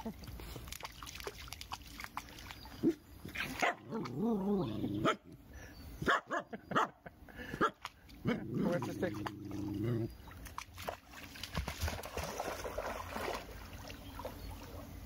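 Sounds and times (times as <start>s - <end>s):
dog barking: 3.6s - 3.9s, 6.0s - 6.9s.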